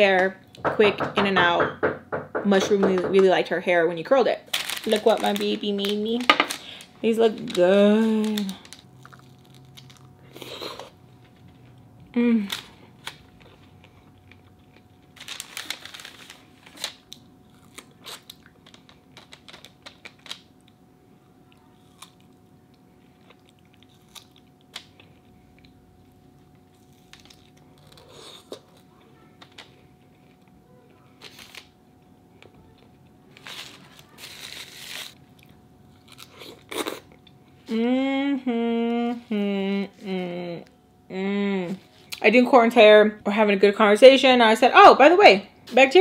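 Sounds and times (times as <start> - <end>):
faint steady hum: 0.0 - 46.0
chewing and crunching: 8.2 - 11.9, 12.5 - 20.8, 21.5 - 37.6.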